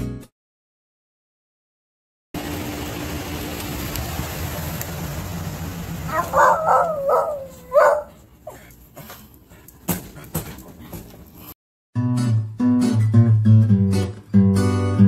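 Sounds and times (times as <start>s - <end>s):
dog barking high: 6.1s - 8.6s.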